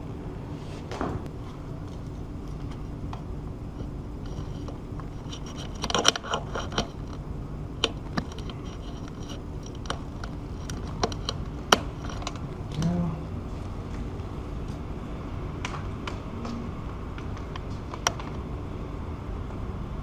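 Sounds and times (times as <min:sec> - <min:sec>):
weather stripping scraping: 0:00.6 - 0:12.9
weather stripping clicks: 0:01.2 - 0:12.9.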